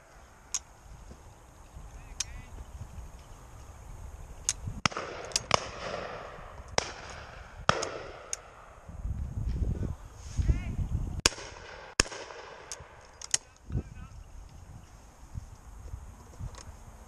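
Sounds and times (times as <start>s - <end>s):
shotgun shots: 4.8s - 8.7s, 11.2s - 13.0s.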